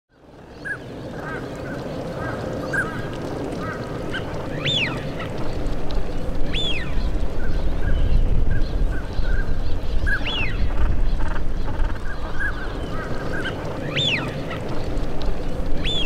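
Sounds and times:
waterfowl calling: 10.1s - 15.1s.

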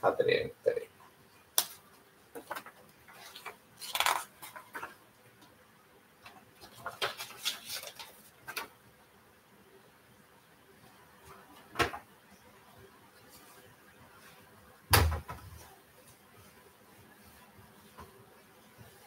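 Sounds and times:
paper rustling: 2.4s - 5.0s, 6.6s - 8.7s.

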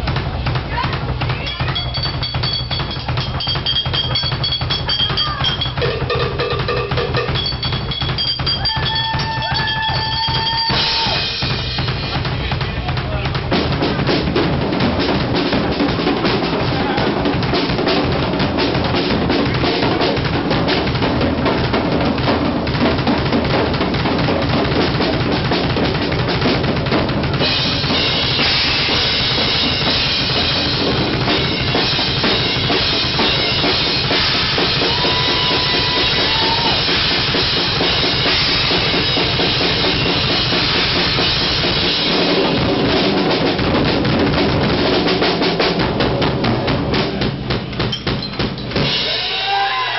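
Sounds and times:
rock drum kit solo: 0.0s - 49.9s
cymbals crashing: 1.2s - 12.8s, 27.3s - 43.8s, 46.7s - 49.9s.

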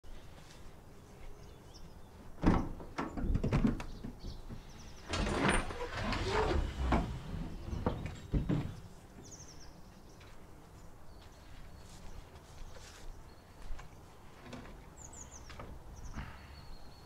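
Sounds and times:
van sliding door opening: 4.9s - 8.8s
rattling and clattering: 5.0s - 8.8s.

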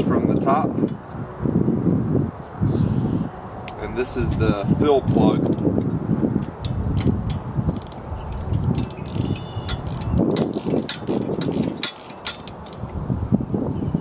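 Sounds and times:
ratcheting wrench clicking: 5.1s - 5.7s, 6.4s - 13.0s.

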